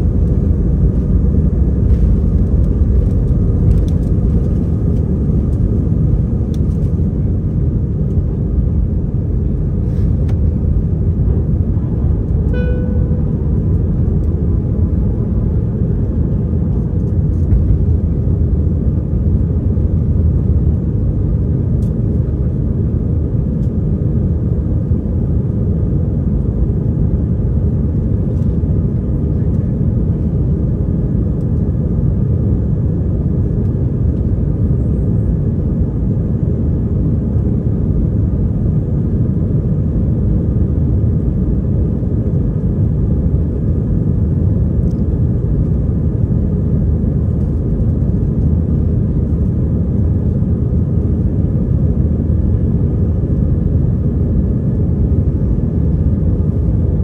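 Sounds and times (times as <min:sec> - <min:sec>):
jet engine cabin rumble: 0:00.0 - 0:57.0.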